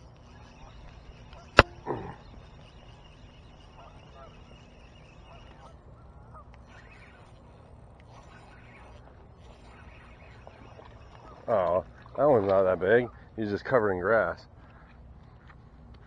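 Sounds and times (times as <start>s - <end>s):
geese honking: 0.0s - 12.2s.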